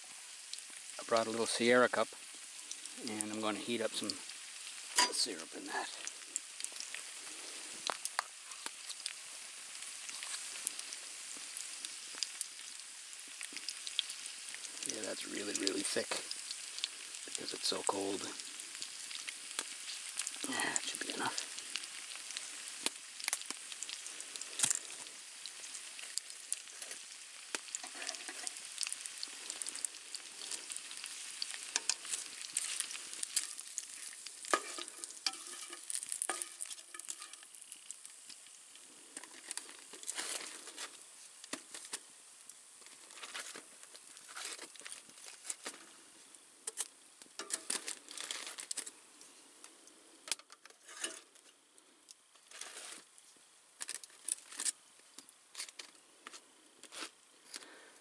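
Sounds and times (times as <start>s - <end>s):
aluminium foil crinkling: 0.0s - 46.0s, 46.6s - 49.0s, 50.2s - 57.9s
bacon sizzling in a frying pan: 0.0s - 58.0s
tongs clicking: 34.5s - 37.4s.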